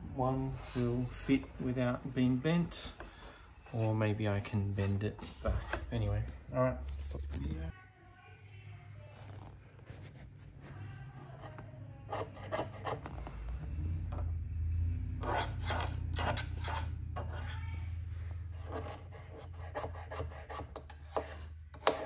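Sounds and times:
steady low hum: 8.5s - 21.8s.

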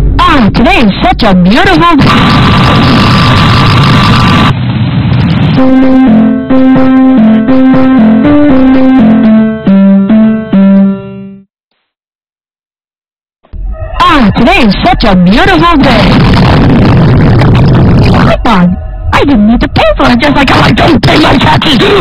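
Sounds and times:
harsh distorted noise: 0.0s - 9.4s, 13.5s - 22.0s
electric piano tune: 5.6s - 11.4s.

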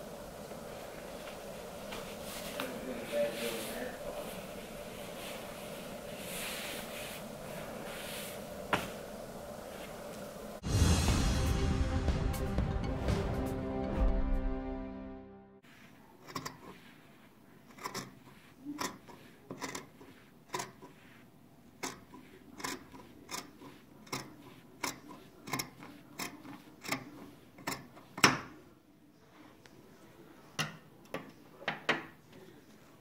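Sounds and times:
scissors snipping fabric: 21.8s - 27.9s.

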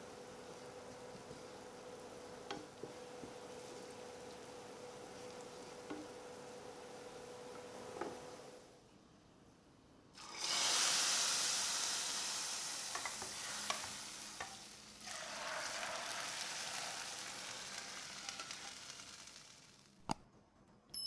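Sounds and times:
oil sizzling in a pan: 0.0s - 7.2s, 10.2s - 20.0s
utensil stirring and tapping pan: 12.9s - 14.6s.

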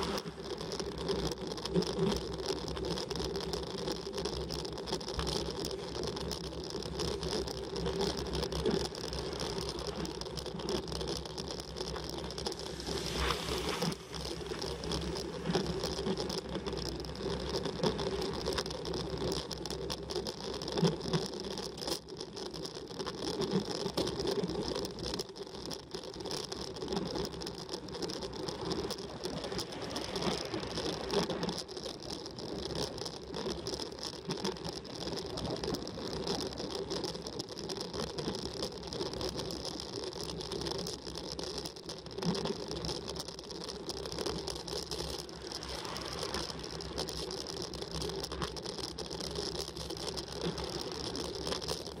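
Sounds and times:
tyres rumbling on asphalt: 0.0s - 22.2s
bicycle chain whirring: 0.0s - 52.0s.

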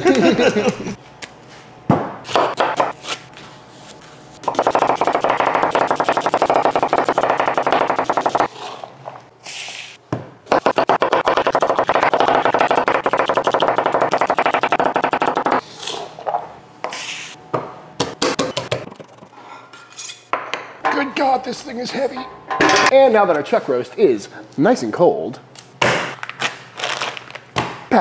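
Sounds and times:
knife chopping on wooden board: 4.5s - 8.5s.

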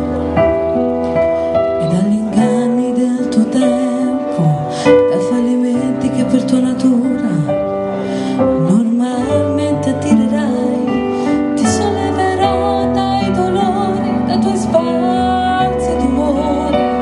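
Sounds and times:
instrumental accompaniment: 0.0s - 17.0s
woman singing slow song: 1.8s - 7.7s, 8.4s - 17.0s.

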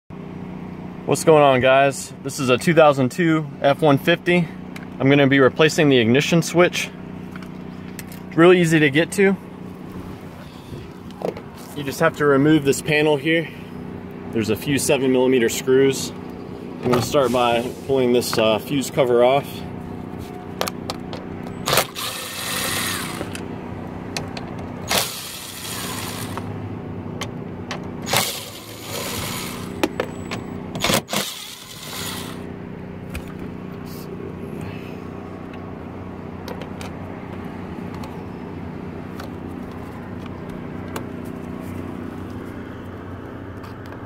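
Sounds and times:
steady low hum: 0.2s - 44.0s
cordless drill running: 21.6s - 23.4s, 24.8s - 26.5s, 28.0s - 29.8s, 30.8s - 32.4s.

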